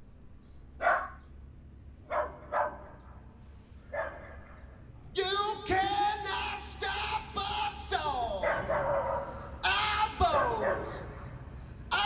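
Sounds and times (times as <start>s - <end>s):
dog barking with reverb: 0.8s - 1.2s, 2.1s - 3.0s, 4.0s - 4.4s, 8.4s - 9.3s, 10.3s - 11.0s
man's vocal: 5.2s - 8.7s, 9.4s - 12.0s.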